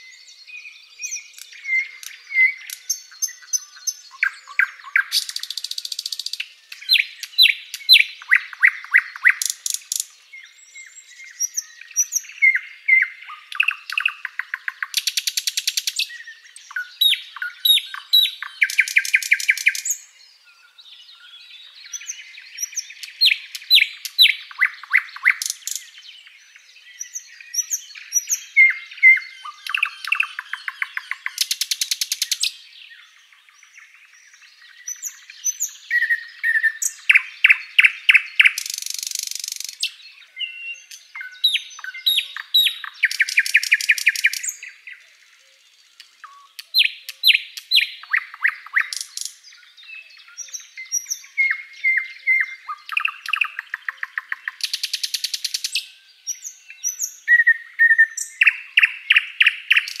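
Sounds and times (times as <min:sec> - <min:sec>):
songbird singing: 0:00.0 - 1:00.0.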